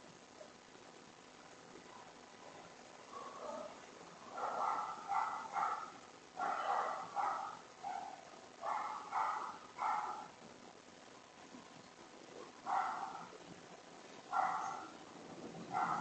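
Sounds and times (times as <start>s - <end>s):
dog barking: 3.1s - 10.3s, 12.6s - 13.3s, 14.3s - 15.0s, 15.7s - 16.0s.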